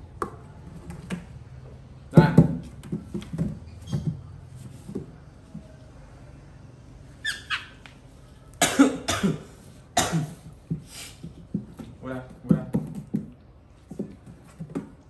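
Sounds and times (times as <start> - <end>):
baby monkey squealing and crying: 7.2 - 7.8.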